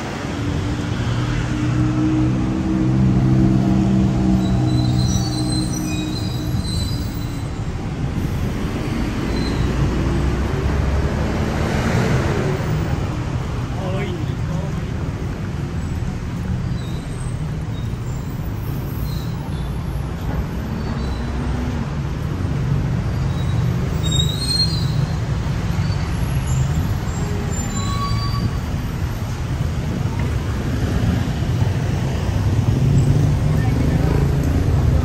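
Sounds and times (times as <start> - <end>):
vehicle rumble: 0.0 - 35.0
faint high squeaks: 23.1 - 28.8.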